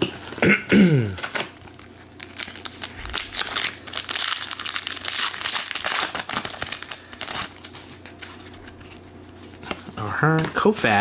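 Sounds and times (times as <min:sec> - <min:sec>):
plastic wrapper crinkling: 0:01.2 - 0:09.8.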